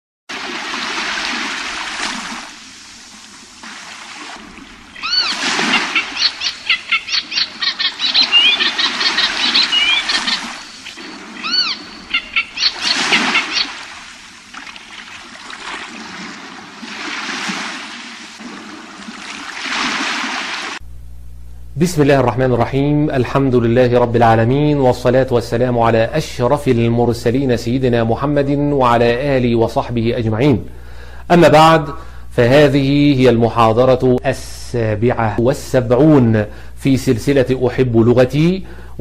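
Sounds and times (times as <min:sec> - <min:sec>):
waves washing: 0:00.3 - 0:20.8
birds chirping and calling: 0:04.9 - 0:13.9.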